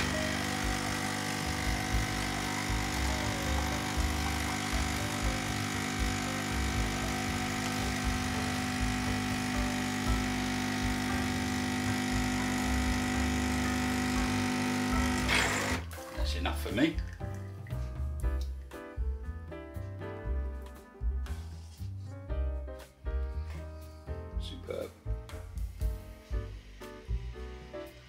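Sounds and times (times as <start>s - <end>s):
espresso machine pump buzzing: 0.0s - 15.9s.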